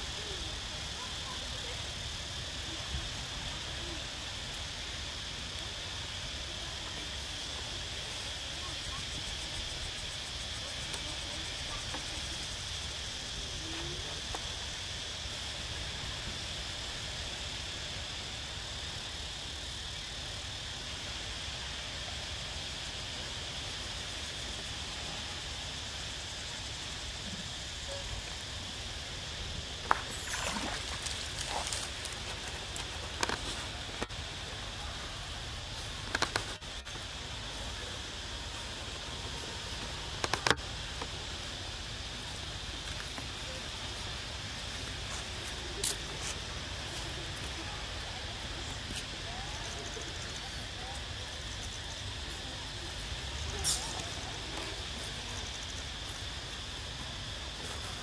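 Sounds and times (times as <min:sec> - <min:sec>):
insects droning: 0:00.0 - 0:58.0
steady hiss: 0:00.0 - 0:58.0
monkey splashing in water: 0:30.0 - 0:33.2.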